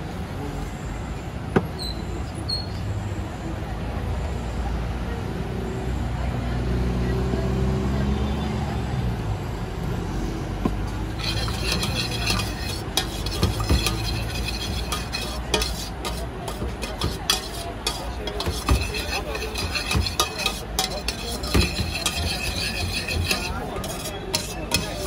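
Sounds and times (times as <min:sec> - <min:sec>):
metal spoon scraping a pan: 0:11.1 - 0:25.0.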